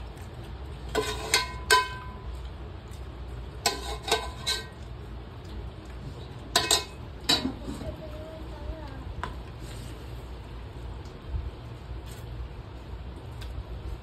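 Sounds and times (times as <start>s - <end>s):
steady low hum: 0.0s - 14.0s
dishes and utensils clinking: 0.8s - 2.5s, 3.6s - 4.9s, 6.3s - 7.9s.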